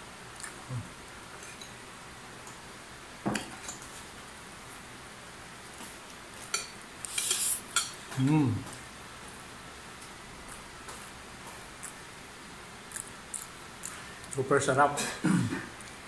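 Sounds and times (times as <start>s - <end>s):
mmm hum through full mouth: 0.4s - 1.2s.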